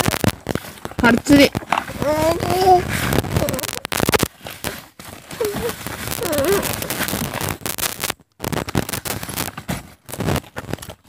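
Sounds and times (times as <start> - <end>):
rustling and crackling handling noise: 0.0 - 11.0.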